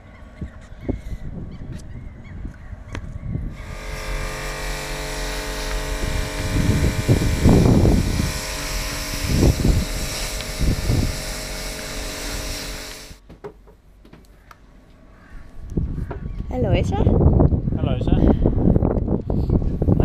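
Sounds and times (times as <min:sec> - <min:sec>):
low rumbles: 0:02.8 - 0:13.2
pressure washer motor hum: 0:03.5 - 0:13.2
spray hissing: 0:03.6 - 0:13.2.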